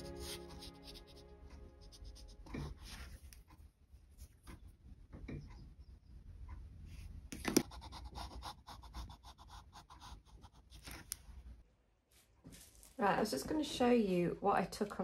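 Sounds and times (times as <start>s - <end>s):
pencil scratching on paper: 0.0s - 4.7s, 6.9s - 11.2s.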